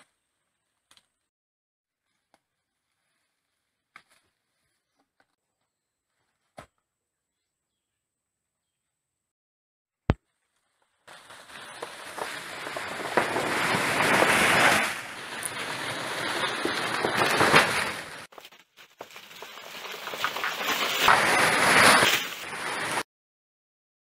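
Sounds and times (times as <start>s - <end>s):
loud crackling rustle: 10.6s - 23.0s.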